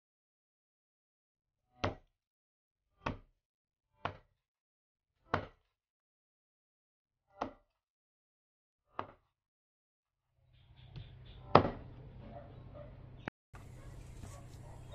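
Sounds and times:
cleaver chopping on plastic board: 0:01.8 - 0:02.1, 0:03.0 - 0:03.3, 0:04.0 - 0:04.3, 0:05.3 - 0:05.7, 0:07.4 - 0:07.6, 0:09.0 - 0:09.2.

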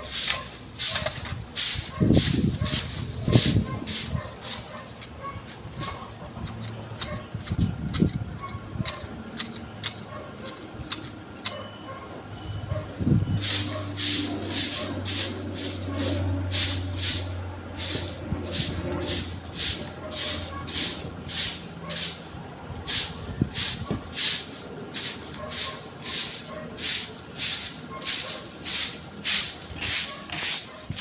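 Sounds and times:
broom sweeping on concrete: 0:00.0 - 0:06.2, 0:12.4 - 0:31.0.

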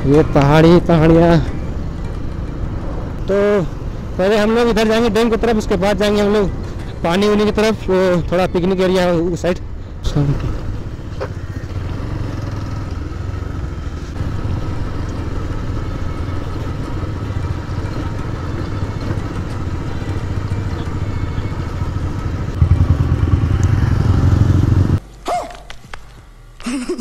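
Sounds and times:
motorcycle engine running: 0:10.2 - 0:25.0.

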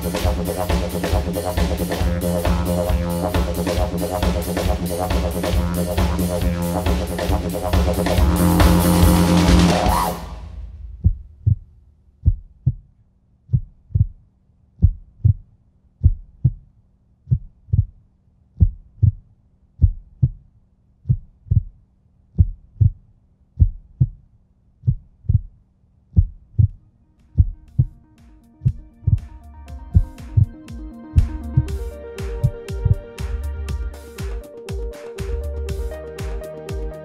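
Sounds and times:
music: 0:00.0 - 0:10.6, 0:26.8 - 0:37.0
heartbeat thumps: 0:00.0 - 0:12.9, 0:13.5 - 0:14.2, 0:14.8 - 0:16.7, 0:17.3 - 0:18.0, 0:18.6 - 0:19.2, 0:19.8 - 0:23.0, 0:23.6 - 0:24.2, 0:24.8 - 0:26.8, 0:27.4 - 0:28.0, 0:28.6 - 0:37.0.

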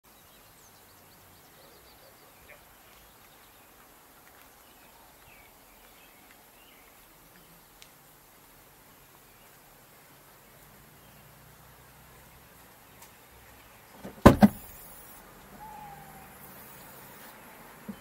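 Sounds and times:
faint outdoor hiss: 0:00.0 - 0:18.0
faint high chirps: 0:14.6 - 0:18.0.

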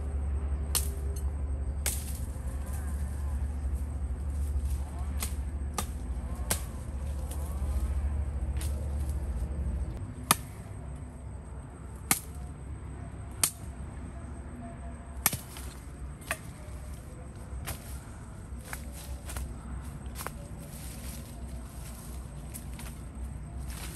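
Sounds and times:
low steady rumble: 0:00.0 - 0:23.9
wood chopping strikes: 0:05.2 - 0:07.3, 0:10.2 - 0:10.6, 0:12.1 - 0:12.4, 0:15.2 - 0:16.6.

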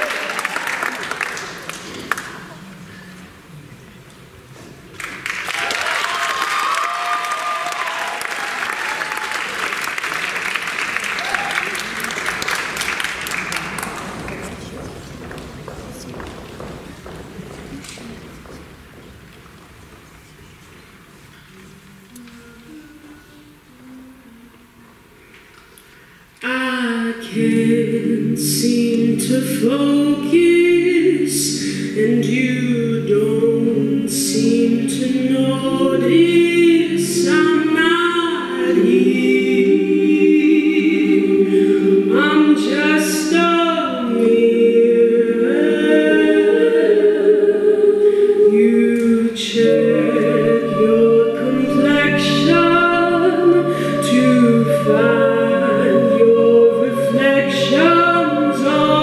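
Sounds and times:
women singing a cappella: 0:21.6 - 0:25.0, 0:26.4 - 0:59.0.

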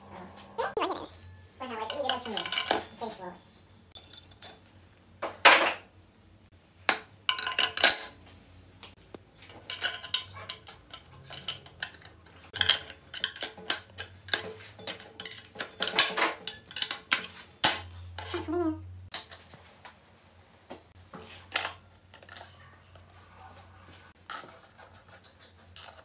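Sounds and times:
metal parts clinking and scraping: 0:01.2 - 0:03.4, 0:07.3 - 0:08.2, 0:09.6 - 0:17.5.

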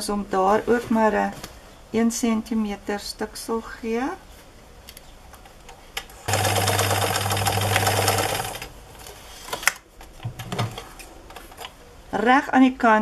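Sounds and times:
sewing machine motor hum: 0:06.3 - 0:08.7.

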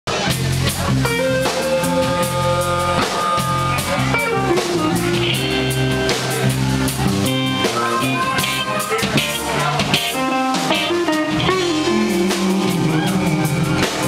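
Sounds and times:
drum kit: 0:00.1 - 0:14.0
electric bass: 0:00.1 - 0:14.0
electric guitars: 0:00.1 - 0:14.0
amplified blues harmonica: 0:01.2 - 0:06.2.

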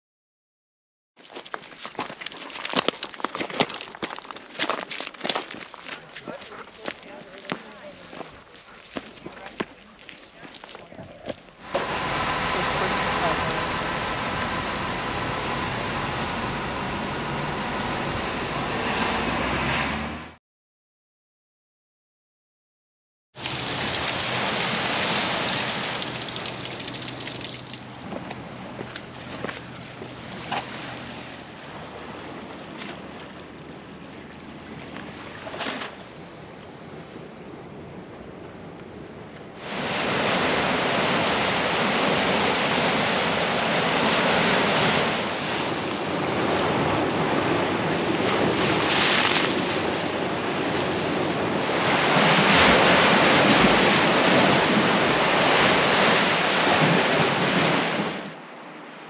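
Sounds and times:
surf breaking over rocks: 0:23.4 - 0:27.7, 0:39.6 - 0:58.4.

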